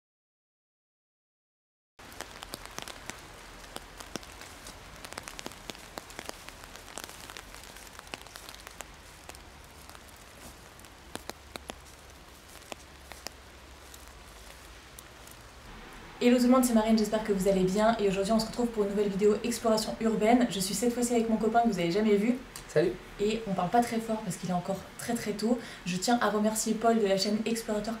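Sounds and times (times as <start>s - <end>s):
raindrop ticks: 2.0s - 25.8s
light rain falling: 2.0s - 28.0s
low rumble: 13.6s - 20.0s.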